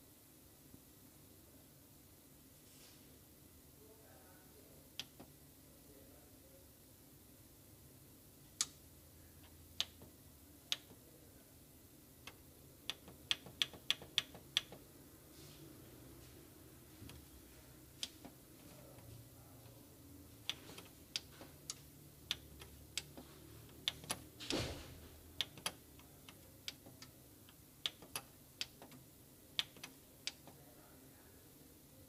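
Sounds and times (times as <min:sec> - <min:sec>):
plastic buttons clicking: 0:12.2 - 0:14.8, 0:25.4 - 0:29.0, 0:29.6 - 0:30.6.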